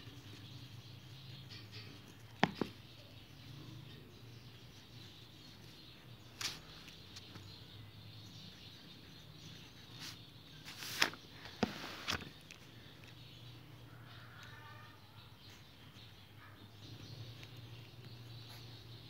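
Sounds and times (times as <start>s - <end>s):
pencil tapping on paper: 1.6s - 2.9s
notebook pages rustling: 6.4s - 7.5s, 9.9s - 12.7s.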